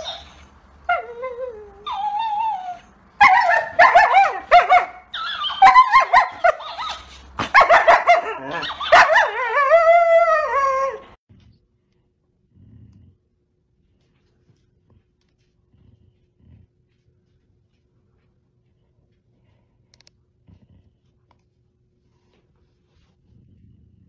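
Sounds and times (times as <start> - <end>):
dog barking and howling: 0.0 - 11.2.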